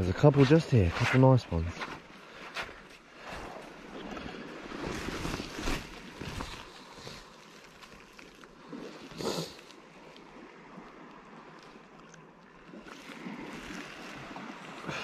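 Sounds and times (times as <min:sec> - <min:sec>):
rustling on wet sand: 0:00.0 - 0:11.9.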